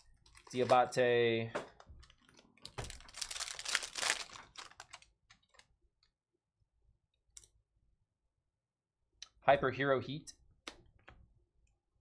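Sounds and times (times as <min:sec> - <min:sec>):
foil wrapper crinkling and tearing: 0:02.0 - 0:05.7.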